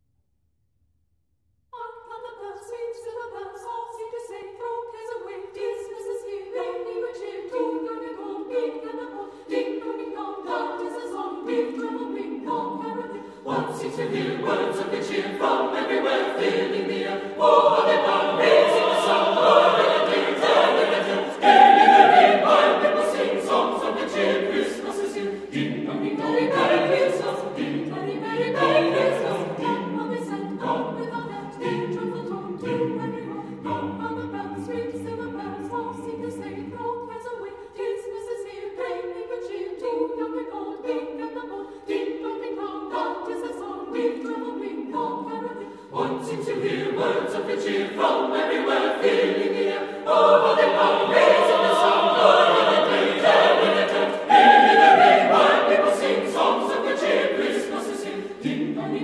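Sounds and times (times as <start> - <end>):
mixed choir singing: 1.8 - 59.0.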